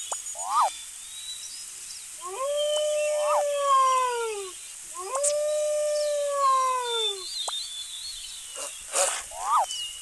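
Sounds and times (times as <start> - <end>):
faint birds chirping: 0.0 - 10.0
wolf howling: 2.2 - 7.2.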